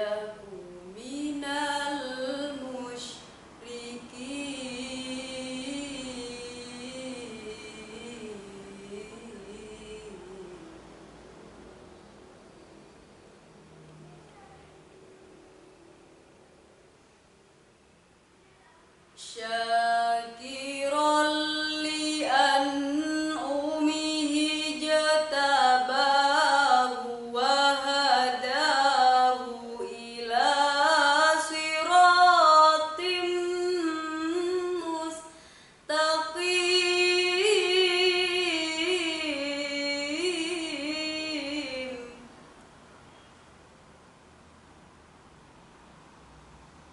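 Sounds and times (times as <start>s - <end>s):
girl reciting in melodic style: 0.0s - 10.7s, 14.0s - 14.8s, 18.4s - 42.3s.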